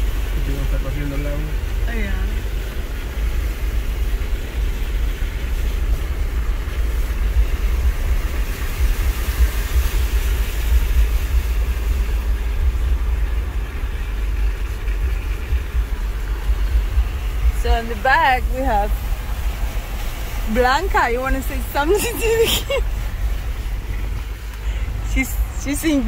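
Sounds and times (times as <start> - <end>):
engine and tyres rumbling: 0.0 - 26.0
tyres hissing through water: 0.0 - 26.0.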